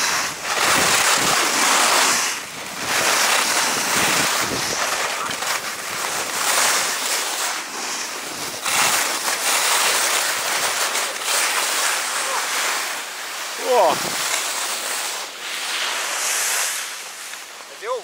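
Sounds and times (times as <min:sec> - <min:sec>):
wind on microphone: 0:00.0 - 0:06.3, 0:13.7 - 0:14.2
skis hissing and scraping over snow: 0:00.0 - 0:18.0.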